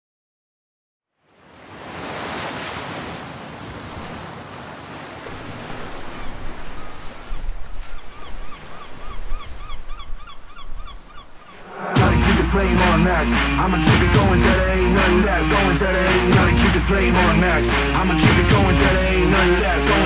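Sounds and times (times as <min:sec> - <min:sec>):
sea waves washing in: 0:01.2 - 0:10.0, 0:10.8 - 0:20.0
electronic music with deep bass: 0:11.9 - 0:20.0.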